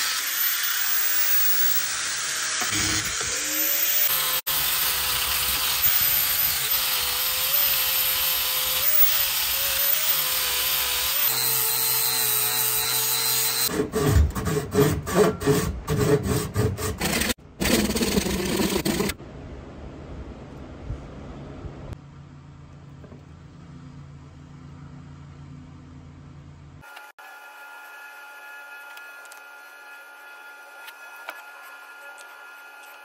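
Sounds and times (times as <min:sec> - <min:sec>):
angle grinder grinding metal: 0:00.0 - 0:13.7, 0:27.8 - 0:33.0.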